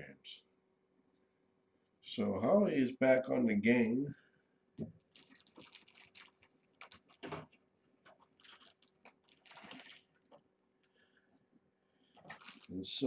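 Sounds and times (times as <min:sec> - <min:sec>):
kitten chewing dry kibble: 0:05.0 - 0:11.0, 0:12.2 - 0:12.7.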